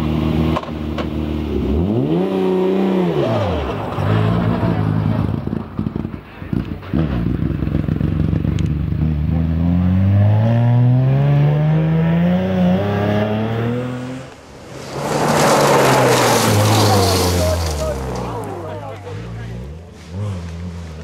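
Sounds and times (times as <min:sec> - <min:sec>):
rally car engine accelerating: 0:00.0 - 0:21.0
car passing: 0:09.9 - 0:21.0
gravel spraying: 0:14.0 - 0:21.0.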